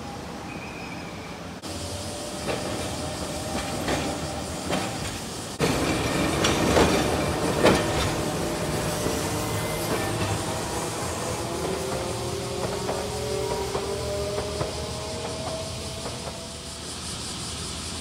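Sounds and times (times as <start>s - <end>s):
tram wheels clacking over rail joints: 1.6s - 16.9s.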